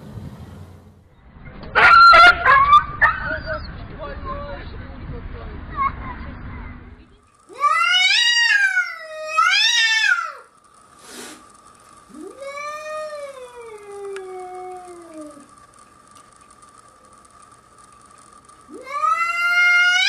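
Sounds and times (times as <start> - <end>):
cat yowling: 7.5 - 10.5, 12.1 - 15.5, 18.7 - 20.0
short noisy burst: 9.6 - 12.3.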